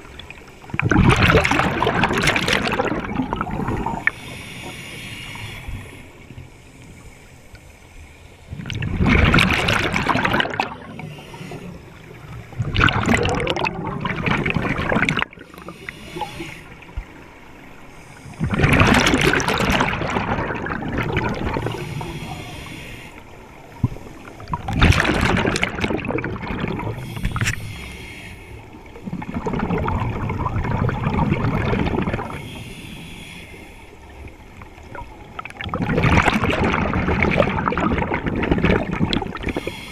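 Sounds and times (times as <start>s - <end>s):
underwater regulator bubbling: 8.5s - 16.7s, 18.3s - 23.0s, 23.8s - 28.2s.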